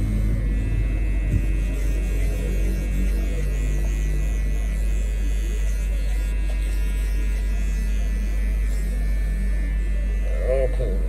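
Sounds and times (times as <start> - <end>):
electric hair clippers buzzing: 0.0 - 11.0.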